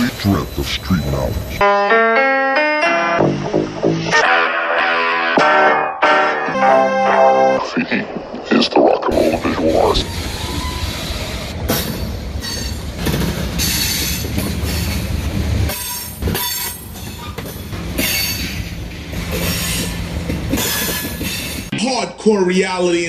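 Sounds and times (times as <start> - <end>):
steel wheels rumbling on rail: 0.0 - 1.6, 9.5 - 21.7
high wheel squeal: 9.8 - 15.1, 15.7 - 18.7.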